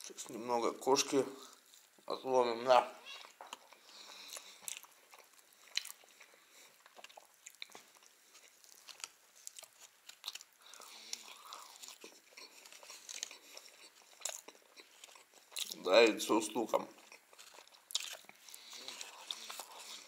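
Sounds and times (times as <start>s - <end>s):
person chewing crunchy food: 3.1s - 15.8s, 16.9s - 20.0s.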